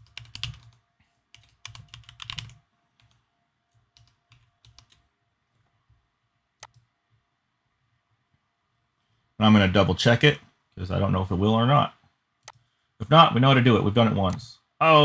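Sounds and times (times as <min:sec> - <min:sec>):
computer keyboard typing: 0:00.0 - 0:05.0, 0:06.6 - 0:06.9.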